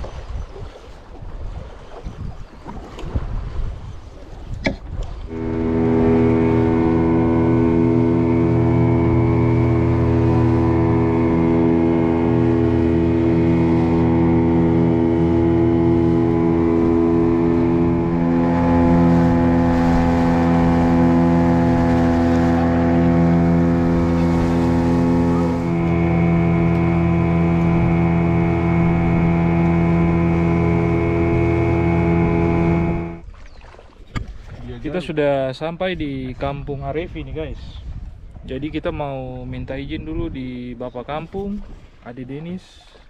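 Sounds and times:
wind noise: 0:00.0 - 0:33.2, 0:35.8 - 0:40.8
water rushing past hull: 0:00.0 - 0:43.0
boat motor droning: 0:04.6 - 0:35.0.

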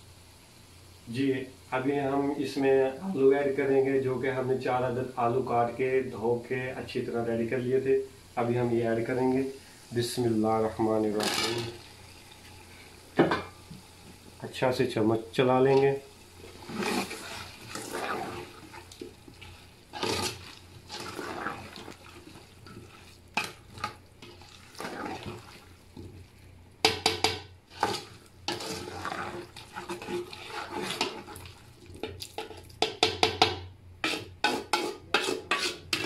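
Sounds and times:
ladle scraping through food: 0:16.4 - 0:26.4, 0:27.7 - 0:32.7, 0:34.0 - 0:36.0.

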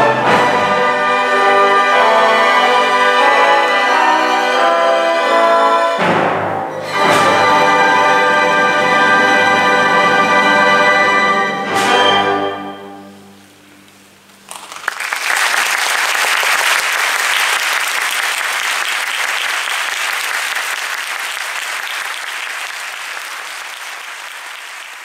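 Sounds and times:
audience applause: 0:14.5 - 0:25.0.

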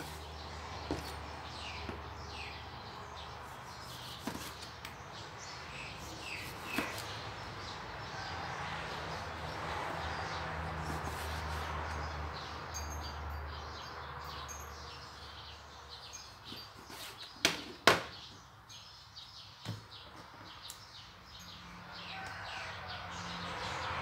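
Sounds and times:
knife cutting tomato: 0:06.3 - 0:07.1.

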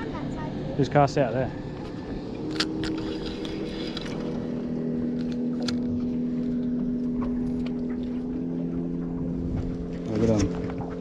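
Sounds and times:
boat motor humming: 0:00.0 - 0:11.0.

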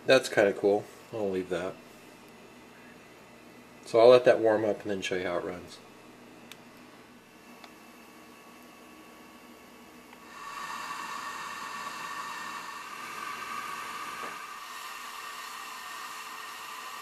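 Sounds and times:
toy steam engine hissing: 0:10.2 - 0:17.0.

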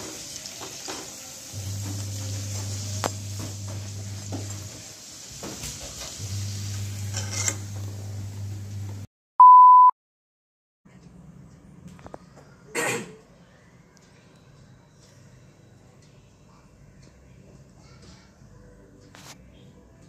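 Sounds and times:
oil sizzling: 0:00.0 - 0:09.1
high test-tone beep: 0:09.4 - 0:09.9.

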